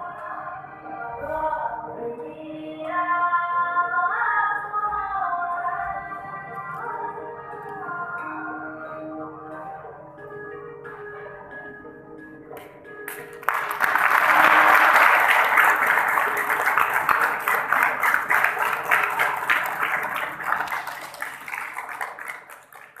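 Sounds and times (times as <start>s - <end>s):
backing music: 5.2s - 22.2s
audience applauding: 13.1s - 23.0s.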